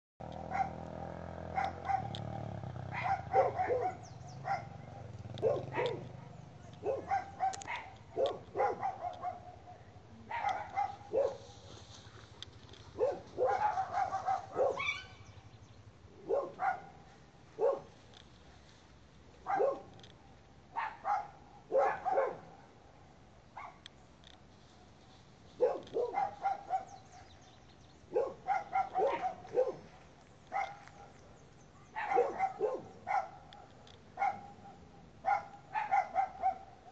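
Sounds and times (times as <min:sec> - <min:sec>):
dog barking: 0:00.4 - 0:11.8, 0:12.9 - 0:15.2, 0:16.2 - 0:18.0, 0:19.4 - 0:20.0, 0:20.7 - 0:22.8, 0:23.6 - 0:23.9, 0:25.6 - 0:27.3, 0:28.1 - 0:31.2, 0:31.8 - 0:36.9.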